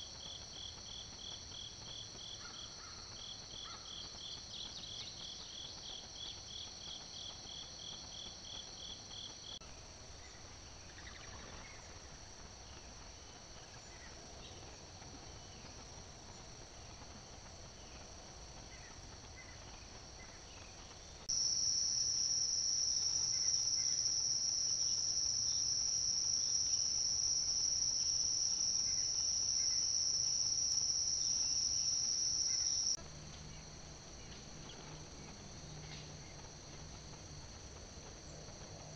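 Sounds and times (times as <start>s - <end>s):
insects trilling chorus: 0.0s - 9.6s, 18.6s - 36.9s.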